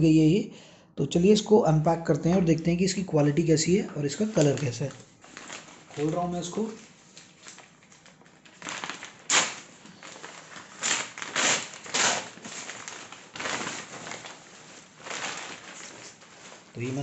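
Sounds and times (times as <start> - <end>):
paper bag rustling and crinkling: 4.0 - 17.0.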